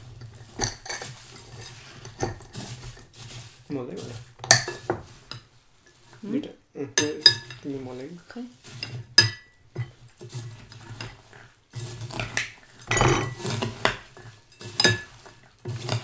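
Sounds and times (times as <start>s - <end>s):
spoon stirring in bowl: 0.0s - 6.3s, 7.0s - 16.0s
spoon clinking against bowl: 7.0s - 7.6s, 9.2s - 10.0s.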